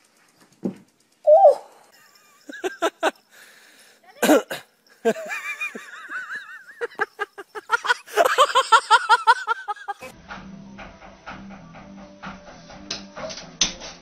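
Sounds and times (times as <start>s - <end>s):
high wavering cries: 1.2s - 3.1s
rising laughter: 2.0s - 3.2s, 5.0s - 10.1s.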